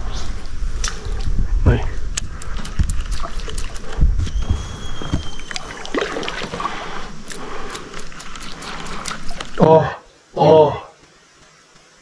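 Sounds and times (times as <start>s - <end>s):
kayak knocking and scraping: 2.8s - 9.6s
faint high whistle-like tone: 4.2s - 5.8s.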